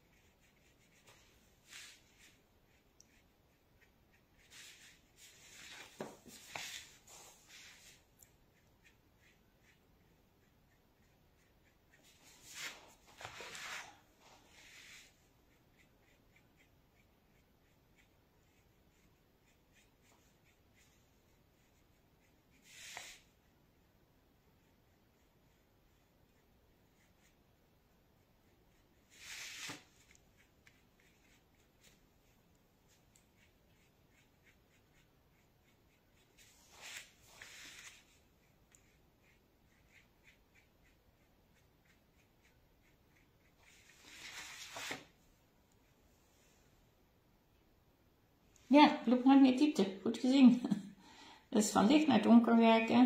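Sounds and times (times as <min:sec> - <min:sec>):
brush ticking on paper: 0:00.0 - 0:45.0
paper scraping on tabletop: 0:12.4 - 0:14.0, 0:29.1 - 0:30.2, 0:43.7 - 0:45.1
paper scraping on table: 0:29.2 - 0:29.9, 0:44.0 - 0:45.1.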